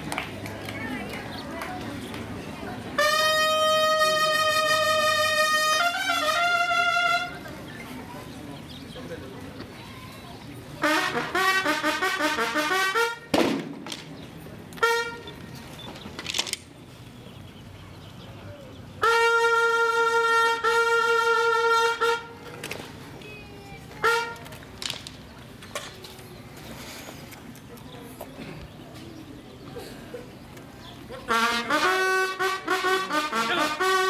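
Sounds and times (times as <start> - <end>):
bugle call: 3.0 - 7.4, 10.8 - 13.3, 14.8 - 15.3, 19.0 - 22.3, 31.3 - 34.0.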